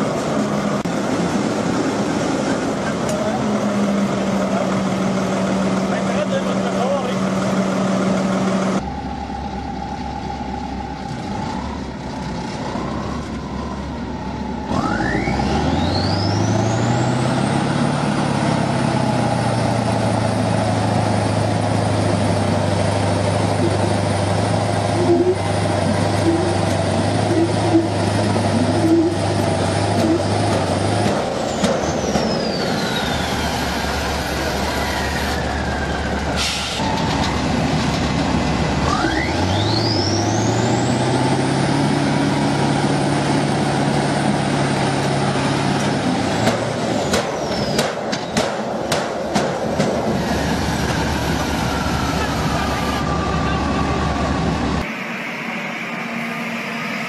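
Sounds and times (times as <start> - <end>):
diesel tractor engines pulling: 0.0 - 57.0
engine whistle: 23.5 - 24.0, 24.9 - 29.4, 38.8 - 41.0, 51.1 - 57.0.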